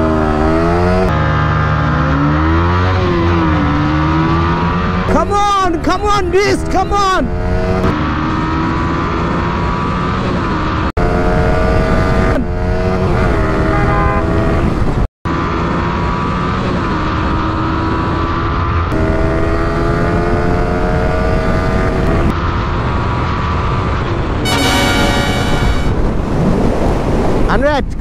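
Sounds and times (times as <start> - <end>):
motorcycle engine accelerating: 0.0 - 5.9, 7.2 - 15.1, 15.9 - 26.2
wind rush: 25.0 - 27.5.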